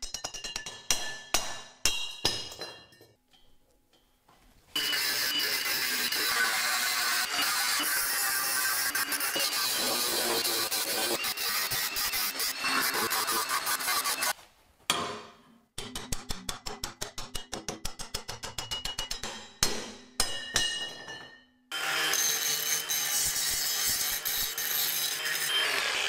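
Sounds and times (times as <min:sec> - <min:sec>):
angle grinder grinding steel: 0:04.8 - 0:14.4, 0:21.7 - 0:26.0
hammer striking steel: 0:14.9 - 0:21.5.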